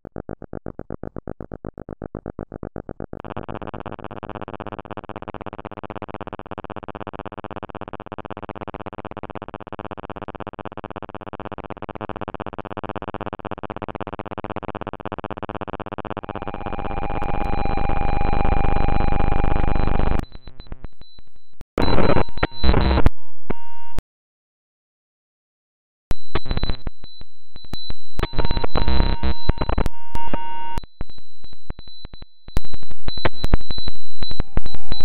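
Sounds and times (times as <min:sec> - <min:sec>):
distorted buzzing drone: 0:15.8 - 0:20.3, 0:28.1 - 0:30.8.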